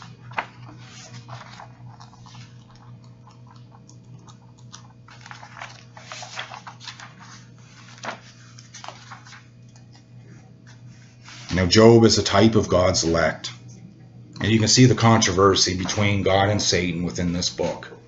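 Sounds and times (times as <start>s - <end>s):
paper pages rustling: 0.0s - 3.1s, 4.7s - 11.7s
steady low hum: 0.0s - 18.0s.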